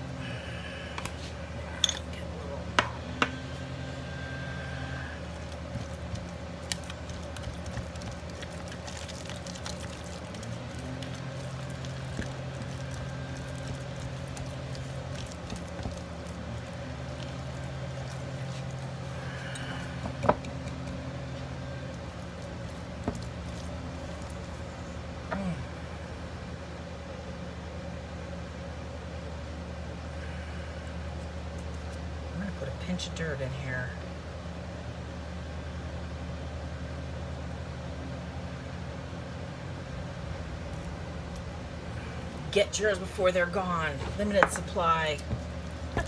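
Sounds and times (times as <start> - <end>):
low mechanical hum: 0.0 - 46.0
hands squishing wet paste: 5.3 - 24.8.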